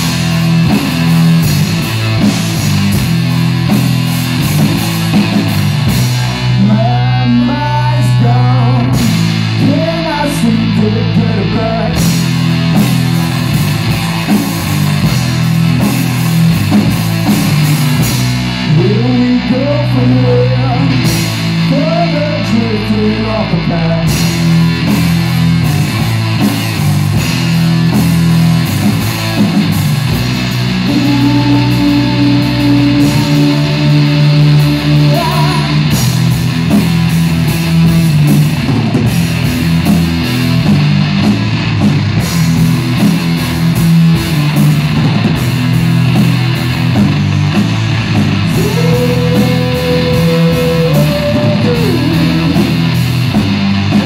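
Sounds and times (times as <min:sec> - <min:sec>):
drum kit: 0:00.0 - 0:54.0
electric bass: 0:00.0 - 0:54.0
electric guitar: 0:00.0 - 0:54.0.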